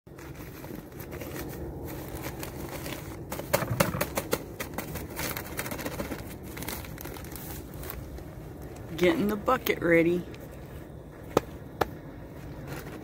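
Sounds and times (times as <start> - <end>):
plastic bags rustling: 0.1 - 9.4.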